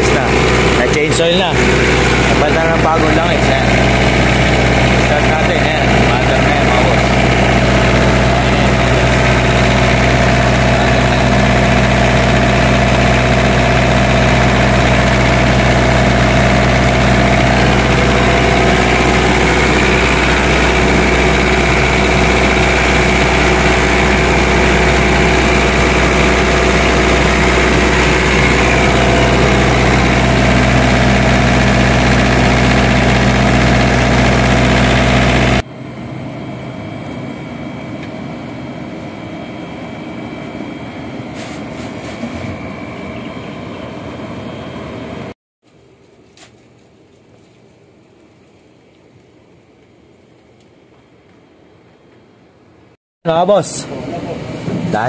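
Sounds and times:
diesel generator engine running: 0.0 - 45.4, 53.3 - 55.0.

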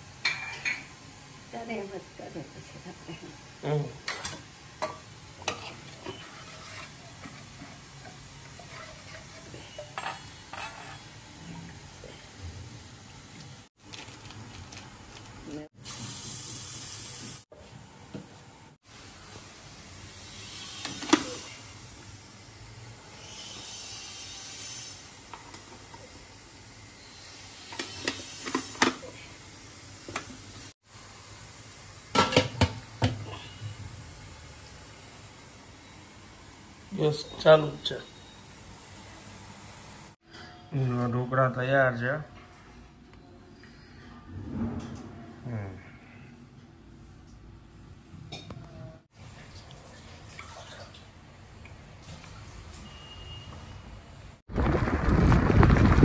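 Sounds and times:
steel utensils and pots clinking: 0.2 - 1.0, 4.0 - 12.1, 27.4 - 29.2, 32.1 - 33.6.

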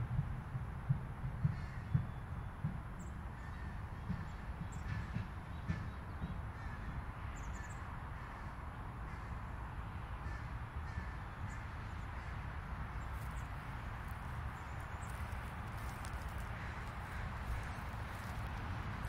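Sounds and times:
distant city traffic rumble: 0.0 - 19.0
crows cawing: 1.4 - 2.0, 3.4 - 7.0, 8.2 - 9.5, 10.2 - 13.5, 14.6 - 18.6.

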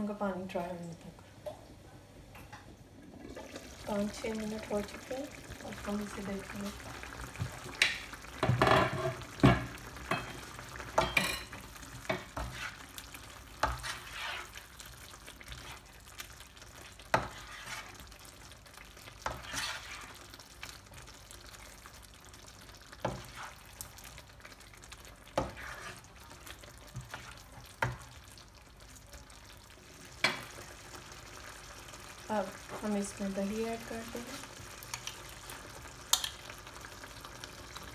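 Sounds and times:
sauce sizzling in a frying pan: 3.0 - 37.9
spoon stirring and scraping: 10.1 - 16.0, 16.8 - 18.2, 19.0 - 20.3, 23.0 - 24.0, 25.3 - 28.1.

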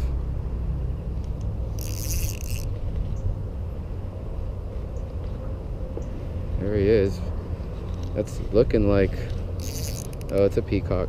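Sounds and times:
fishing reel drag buzzing: 1.6 - 2.8, 9.6 - 10.6.

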